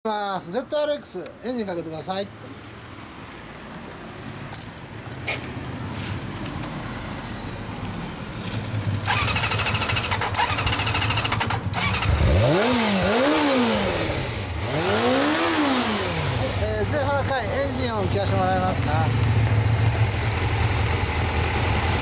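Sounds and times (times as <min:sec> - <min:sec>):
motorcycle engine starting: 0:08.4 - 0:16.8
motorcycle engine revving: 0:08.8 - 0:16.9.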